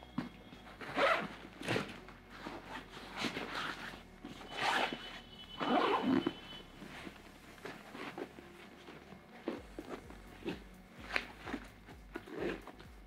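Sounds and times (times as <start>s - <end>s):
straps and fabric rustling: 0.0s - 13.0s
zipper drawn: 0.8s - 6.4s.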